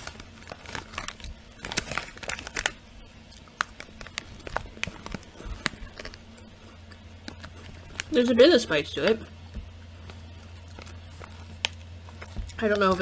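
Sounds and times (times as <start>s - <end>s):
crunchy snack chewing: 0.0s - 8.1s
plastic bag crinkling: 0.0s - 9.1s, 10.0s - 13.0s.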